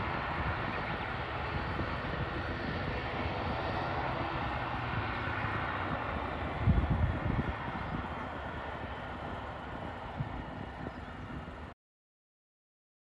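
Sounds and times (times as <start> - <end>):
wind buffeting microphone: 0.0 - 11.7
distant airport rush: 0.0 - 11.8.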